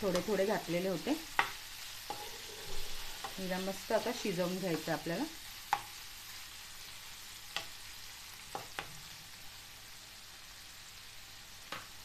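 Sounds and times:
spatula stirring: 0:00.0 - 0:05.1
liver sizzling in oil: 0:00.0 - 0:12.0.

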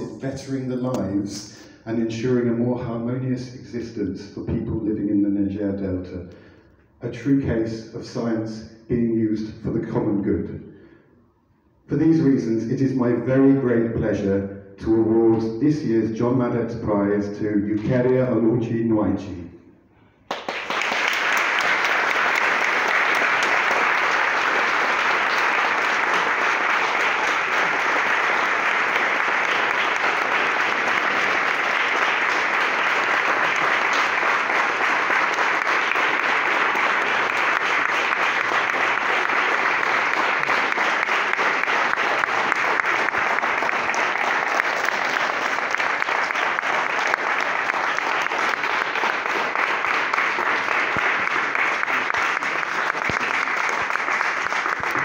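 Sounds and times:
audience applauding: 0:20.2 - 0:55.0.

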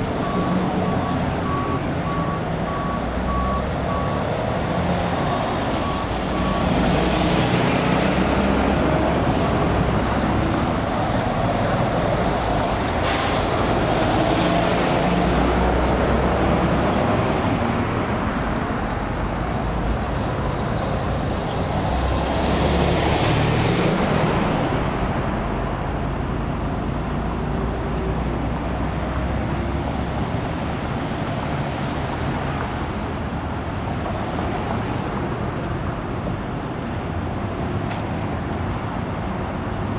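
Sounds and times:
truck reversing alarm beeping: 0:00.0 - 0:07.0
heavy vehicle engines idling: 0:00.0 - 0:34.4
highway traffic: 0:00.0 - 0:39.9.

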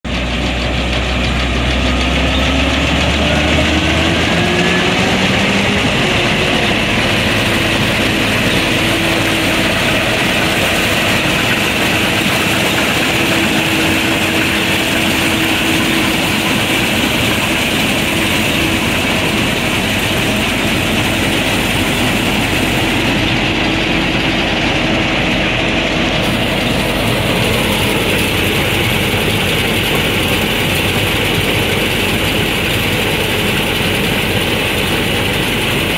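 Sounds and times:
combine harvester engine running: 0:00.0 - 0:35.9.

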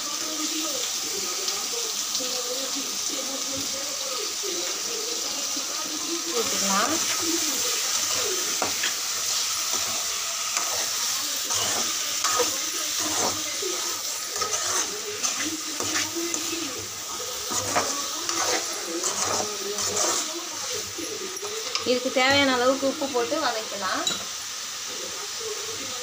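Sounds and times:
meat sizzling: 0:00.0 - 0:26.0
metal spatula scraping pan: 0:06.4 - 0:23.2.

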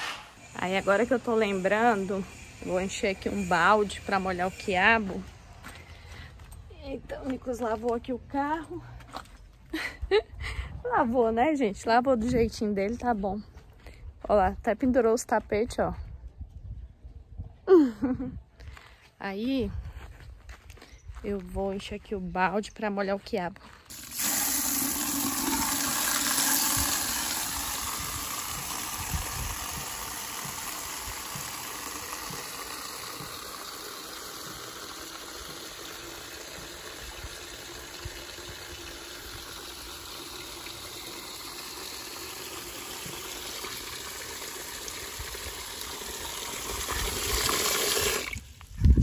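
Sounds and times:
water running into a bucket: 0:23.9 - 0:48.7.

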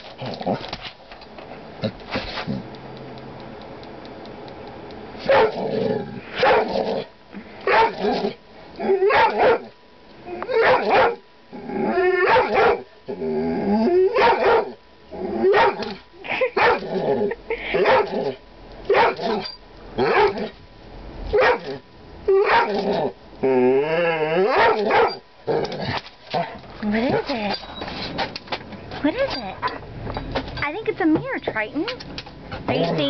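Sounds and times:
young dog barking: 0:05.3 - 0:05.6, 0:06.4 - 0:06.7, 0:07.7 - 0:08.1, 0:09.1 - 0:09.7, 0:10.6 - 0:11.2, 0:12.2 - 0:12.9, 0:14.2 - 0:14.8, 0:15.5 - 0:15.9, 0:16.6 - 0:16.8, 0:17.8 - 0:18.1, 0:18.9 - 0:19.4, 0:20.0 - 0:20.5, 0:21.3 - 0:21.8, 0:22.4 - 0:22.8, 0:24.5 - 0:25.2.

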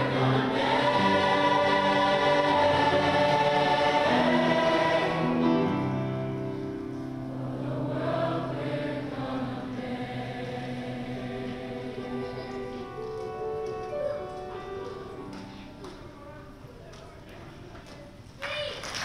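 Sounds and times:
choir singing sustained chords: 0:00.0 - 0:12.9.

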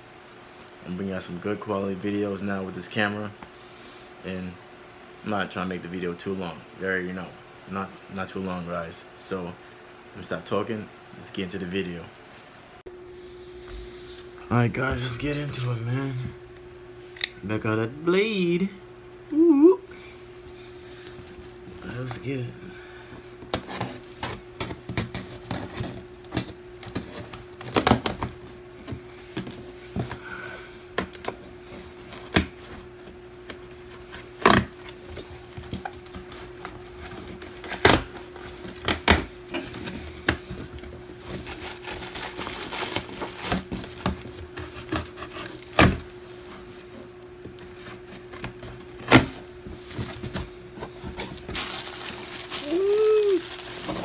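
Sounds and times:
faint steady hum: 0:00.0 - 0:54.0
plastic wrapping rustling: 0:31.1 - 0:46.9, 0:49.6 - 0:54.0.

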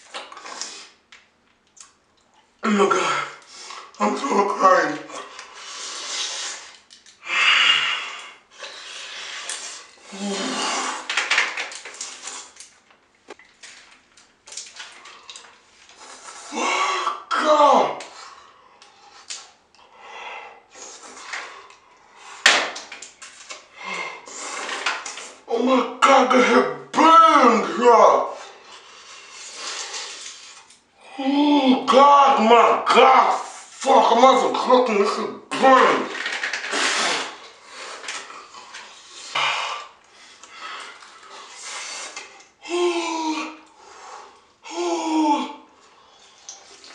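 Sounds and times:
person hissing breaths through teeth: 0:05.5 - 0:11.1, 0:23.8 - 0:24.8, 0:39.0 - 0:42.3.

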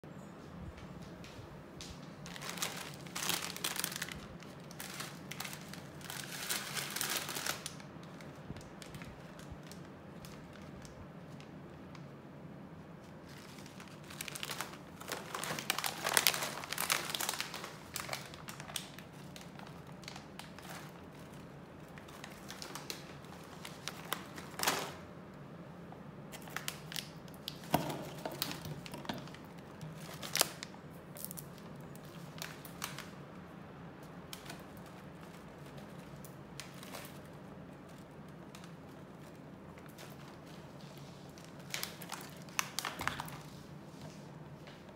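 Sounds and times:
plastic snack bag crinkling: 0:01.8 - 0:12.2, 0:12.9 - 0:25.3, 0:26.2 - 0:44.9.

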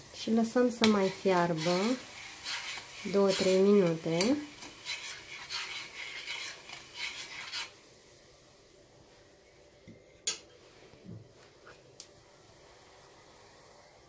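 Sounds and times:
metal spoon scraping saucepan: 0:00.8 - 0:07.7.

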